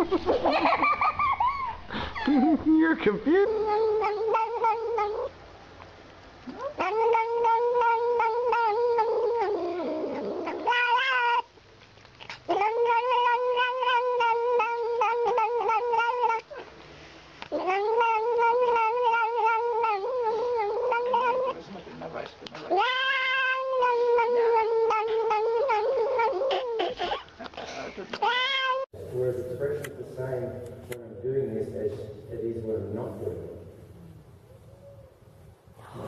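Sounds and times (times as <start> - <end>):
cat yowling: 3.4 - 5.3, 6.5 - 11.5, 12.3 - 16.7, 17.5 - 21.6, 22.6 - 27.3, 28.2 - 28.9.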